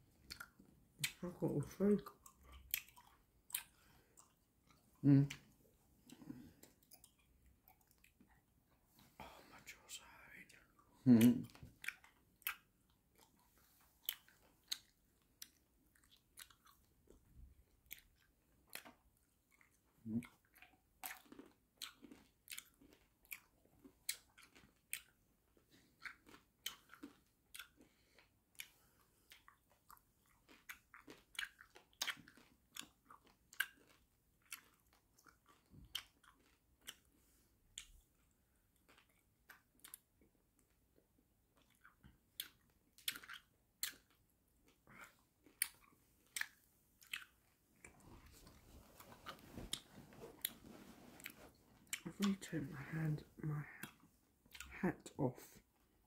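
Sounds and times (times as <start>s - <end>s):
wet mouth noises: 0.2s - 8.5s, 10.0s - 16.9s, 41.6s - 55.8s.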